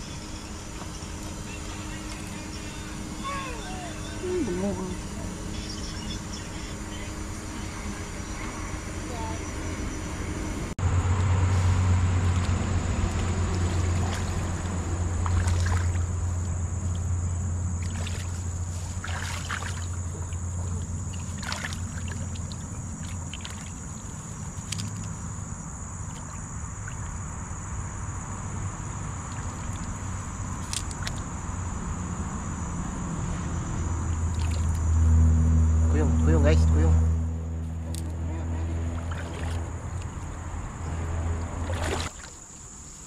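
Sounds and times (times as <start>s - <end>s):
steady high whine: 0.0s - 10.8s
steady low hum: 0.0s - 43.0s
hands splashing in stream water: 12.2s - 16.2s, 17.8s - 25.2s, 34.3s - 34.8s, 39.0s - 39.7s, 41.6s - 42.6s.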